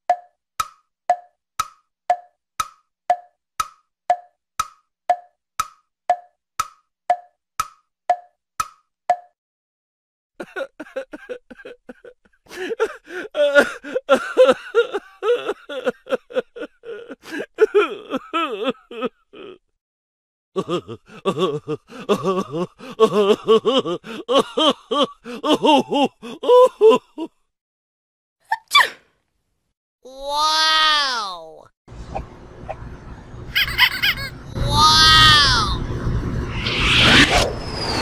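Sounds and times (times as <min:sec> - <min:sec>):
person sobbing: 0:10.4 - 0:19.7, 0:20.6 - 0:27.4.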